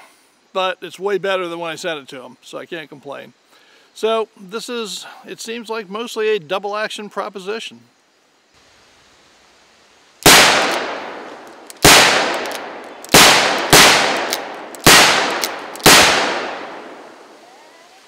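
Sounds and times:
revolver gunshots: 0:10.2 - 0:17.2.

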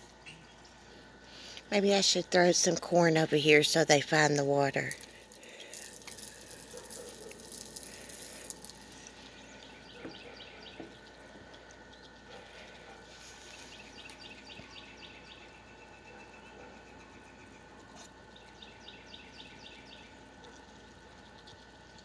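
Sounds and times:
small birds chirping: 0:00.1 - 0:02.0, 0:04.8 - 0:22.0
corn pattering onto ground: 0:04.9 - 0:14.2.

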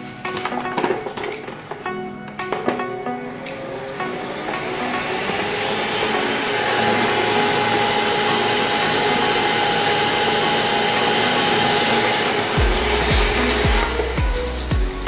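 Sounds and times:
robot vacuum cleaner whirring: 0:02.6 - 0:14.7
music with deep thumping beat: 0:04.5 - 0:15.0.

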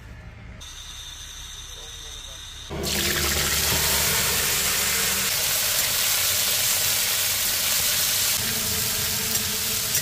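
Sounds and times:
vegetables sizzling in wok: 0:03.0 - 0:10.0.

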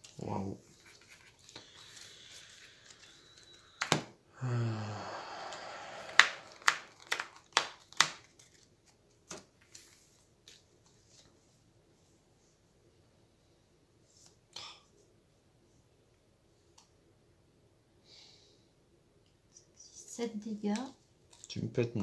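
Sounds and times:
cards sliding together: 0:00.8 - 0:04.1, 0:05.4 - 0:08.6
cards slapping on table: 0:03.8 - 0:04.1, 0:06.1 - 0:08.4.

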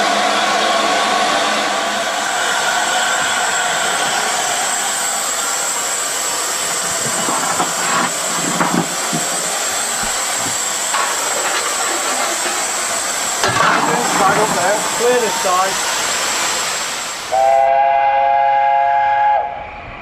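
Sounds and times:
hiss of escaping steam: 0:02.0 - 0:17.6.

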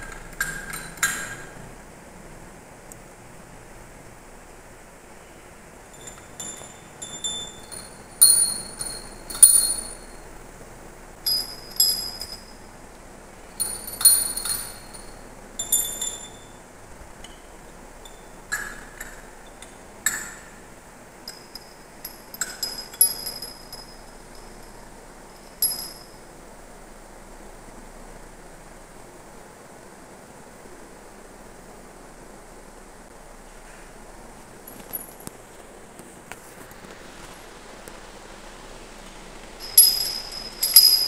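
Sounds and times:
small brass bells jangling: 0:05.9 - 0:10.2, 0:11.3 - 0:12.7, 0:13.6 - 0:16.6, 0:21.3 - 0:26.2, 0:39.6 - 0:41.0.

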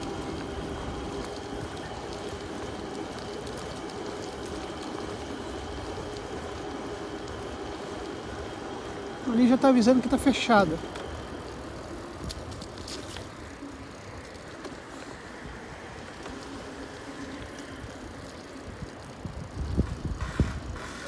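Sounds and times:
bicycle tyres on wet road: 0:00.0 - 0:21.0
wind rumble on microphone: 0:18.7 - 0:21.0.

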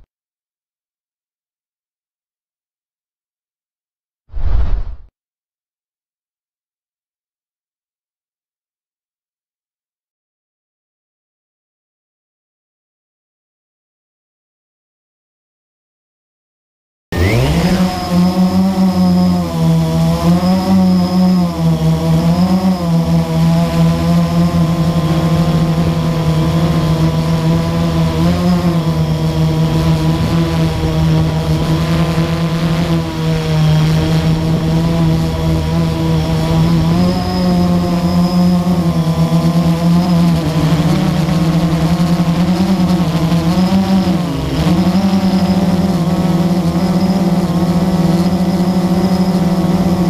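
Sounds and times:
drone propellers buzzing: 0:17.2 - 0:50.0.

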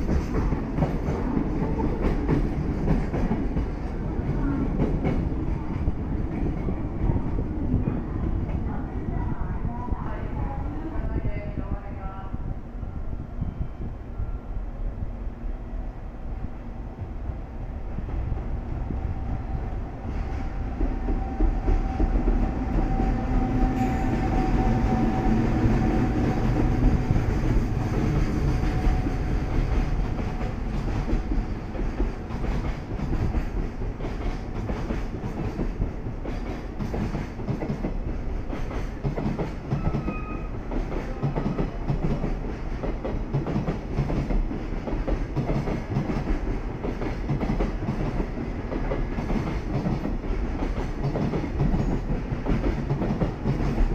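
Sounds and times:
train wheels clickety-clack: 0:00.0 - 0:08.8, 0:19.9 - 0:53.9
electric locomotive whine: 0:11.6 - 0:38.4, 0:39.6 - 0:43.3.

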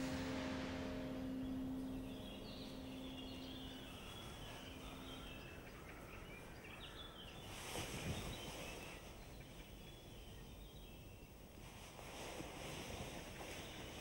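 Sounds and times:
church bell ringing: 0:00.0 - 0:07.2
small birds chirping: 0:00.0 - 0:11.6
faint outdoor background noise: 0:00.0 - 0:14.0.

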